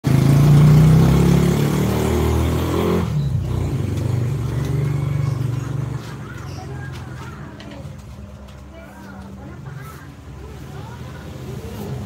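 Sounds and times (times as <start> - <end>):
vehicle engine running: 0.0 - 8.6.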